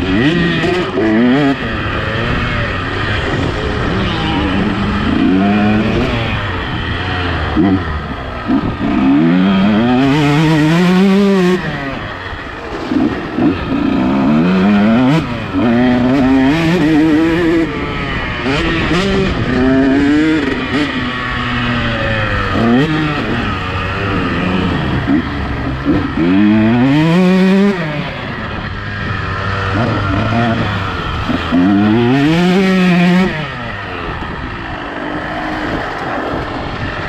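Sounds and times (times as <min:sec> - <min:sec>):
two-stroke motorbike engine revving: 0:00.0 - 0:37.0.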